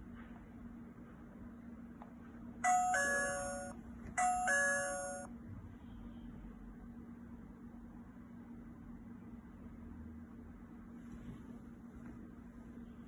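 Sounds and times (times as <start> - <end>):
electronic two-tone doorbell chime: 2.6 - 5.3.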